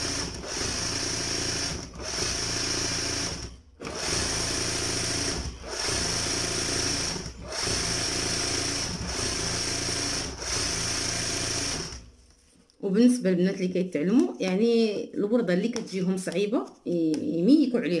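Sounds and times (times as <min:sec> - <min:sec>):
sewing machine stitching: 0:00.0 - 0:12.1.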